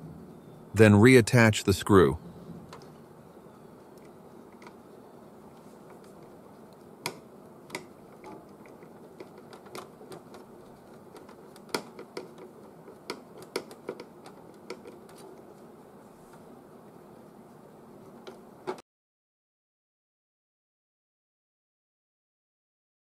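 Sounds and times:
plastic printer parts clicking: 7.0s - 15.4s.

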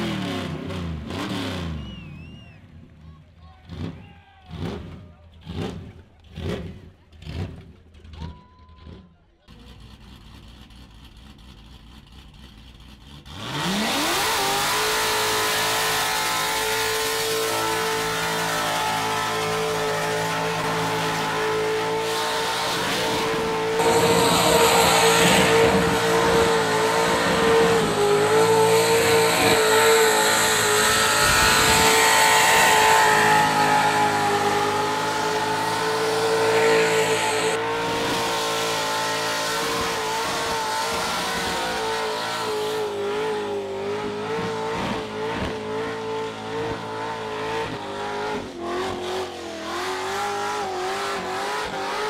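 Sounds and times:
car engine at high revs: 0.0s - 2.4s, 9.5s - 52.0s
tires squealing: 13.3s - 52.0s.

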